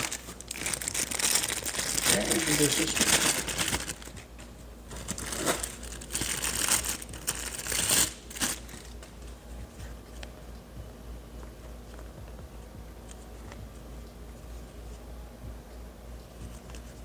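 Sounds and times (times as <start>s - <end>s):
packaging crinkling and rustling: 0.0s - 10.4s.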